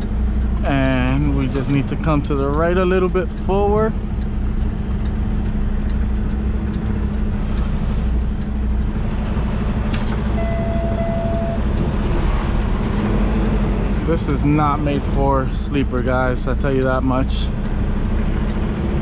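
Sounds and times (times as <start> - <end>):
diesel truck engine running: 0.0 - 19.0
steady beep: 10.4 - 11.8.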